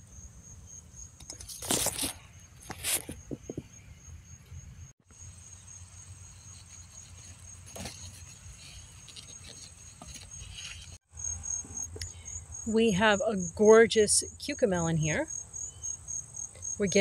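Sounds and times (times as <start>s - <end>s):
crickets chirping: 0.0s - 17.0s
rustling of plant vines: 1.3s - 3.4s, 5.3s - 11.0s.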